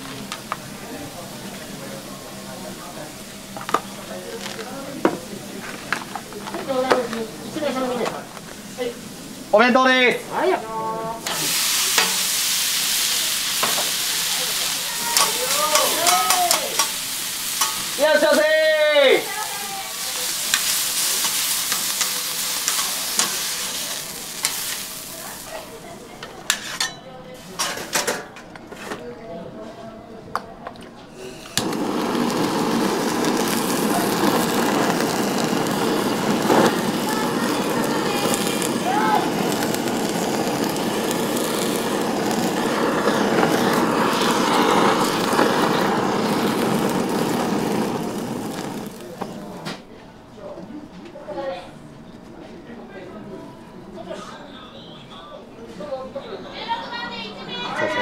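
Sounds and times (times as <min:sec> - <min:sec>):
meat sizzling on a griddle: 0:00.0 - 0:26.7, 0:31.6 - 0:49.5
blowtorch flame jet: 0:11.1 - 0:25.9, 0:31.2 - 0:49.7
utensils scraping a metal plate: 0:26.5 - 0:27.0.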